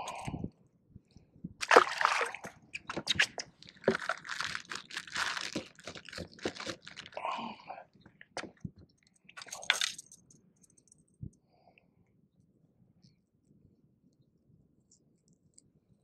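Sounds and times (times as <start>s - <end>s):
fish splashing in water: 1.6s - 7.1s.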